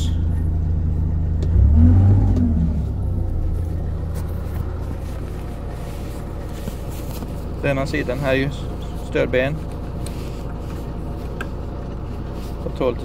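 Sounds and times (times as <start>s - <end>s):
excavator diesel engine revving: 0.0s - 5.9s.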